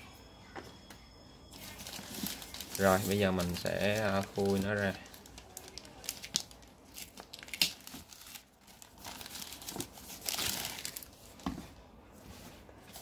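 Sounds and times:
plastic bag crinkling: 0:01.6 - 0:11.4.

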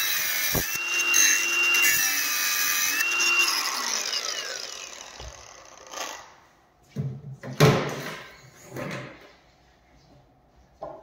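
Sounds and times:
angle grinder winding down: 0:00.0 - 0:06.4.

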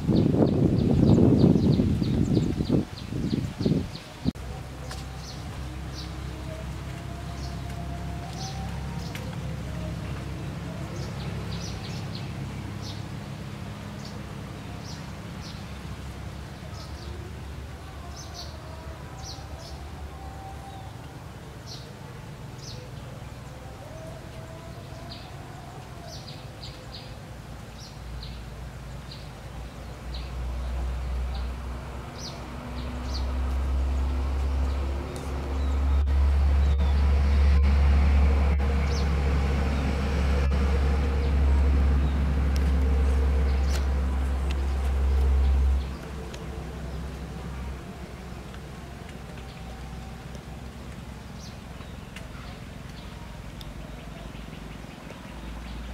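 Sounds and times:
small birds chirping: 0:00.1 - 0:13.3, 0:41.2 - 0:55.9
low rumble: 0:29.4 - 0:55.9.

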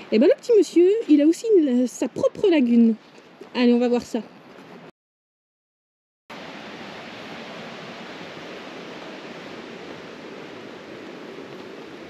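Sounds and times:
running water: 0:06.3 - 0:12.0.

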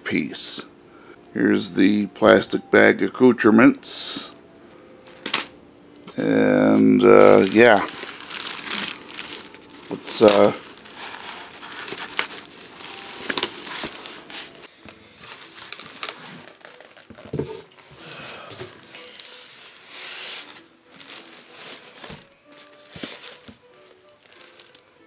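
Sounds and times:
plastic wrapping crinkling: 0:05.0 - 0:05.5, 0:06.2 - 0:25.0
foam packing creaking: 0:06.2 - 0:24.9.

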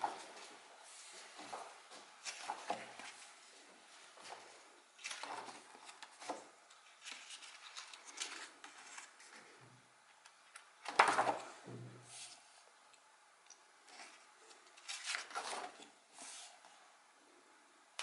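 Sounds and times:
book pages turning: 0:00.0 - 0:09.6, 0:13.8 - 0:16.8.

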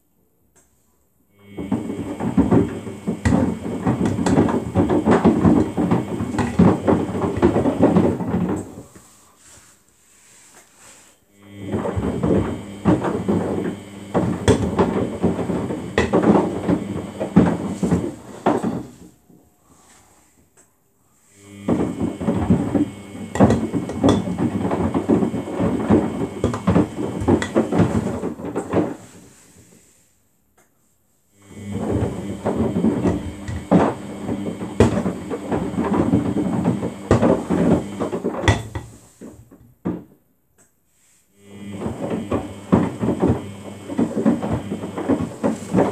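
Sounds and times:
plastic drawer knocking against drum: 0:01.6 - 0:08.8, 0:11.7 - 0:19.0, 0:21.6 - 0:29.0, 0:31.8 - 0:39.0, 0:42.2 - 0:45.9
washing machine drum tumbling: 0:01.6 - 0:09.2, 0:11.6 - 0:19.2, 0:21.6 - 0:29.2, 0:31.5 - 0:39.6, 0:41.6 - 0:45.9
low motor hum: 0:11.4 - 0:19.0, 0:21.4 - 0:28.4, 0:31.4 - 0:38.4, 0:41.4 - 0:45.9.

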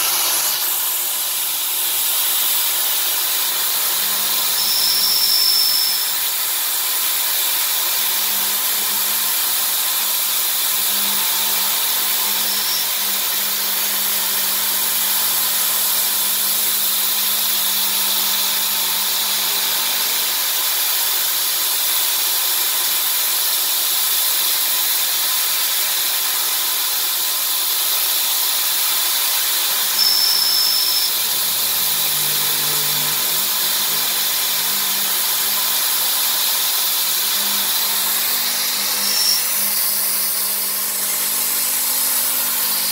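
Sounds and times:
milling machine cutting metal: 0:00.0 - 0:42.9
high squeal: 0:04.3 - 0:06.2, 0:29.7 - 0:36.0, 0:37.2 - 0:40.6.

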